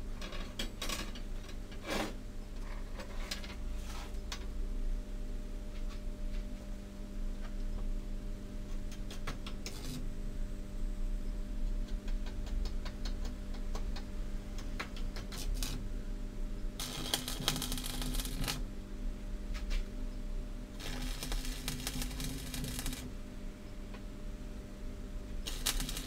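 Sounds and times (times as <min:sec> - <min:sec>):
light scattered ticks and taps: 0:11.7 - 0:15.4
welding arc crackling sizzle: 0:15.2 - 0:15.9, 0:16.7 - 0:18.7, 0:20.8 - 0:23.2, 0:25.3 - 0:26.0.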